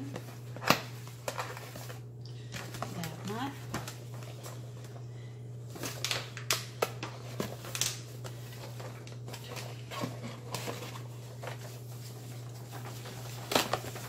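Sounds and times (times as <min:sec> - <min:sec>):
paperboard rustling and clicking: 0:05.8 - 0:14.0.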